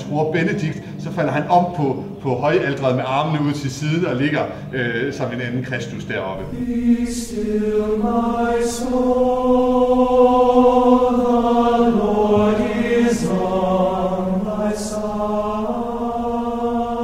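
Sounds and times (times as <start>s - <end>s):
chanting in long held notes: 6.3s - 17.0s.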